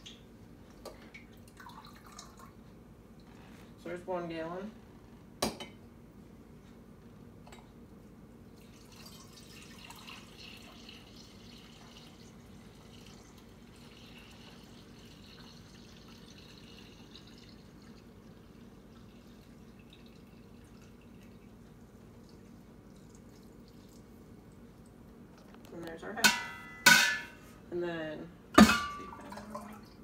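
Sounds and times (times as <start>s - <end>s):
milk trickling into a jar: 1.4s - 2.6s, 8.6s - 24.2s.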